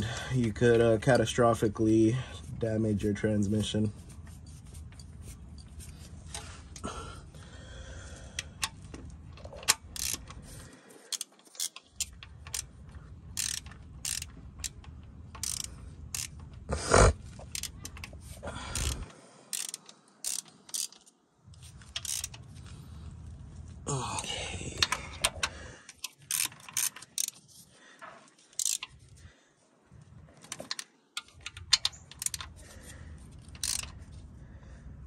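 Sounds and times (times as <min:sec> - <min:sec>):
hand ratchet clicking: 0:08.4 - 0:16.7, 0:17.4 - 0:22.5, 0:24.8 - 0:27.5, 0:28.5 - 0:29.2, 0:30.4 - 0:34.2.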